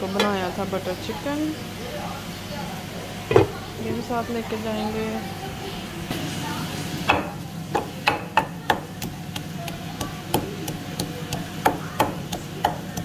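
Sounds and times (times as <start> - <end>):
pestle pounding in wooden mortar: 7.1 - 13.0.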